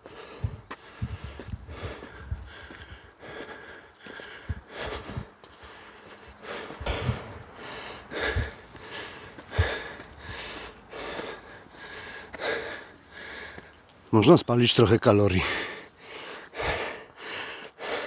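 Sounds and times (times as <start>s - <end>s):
dull footfalls on stairs: 0.0s - 11.8s
man breathing hard: 0.0s - 13.9s, 15.4s - 18.0s.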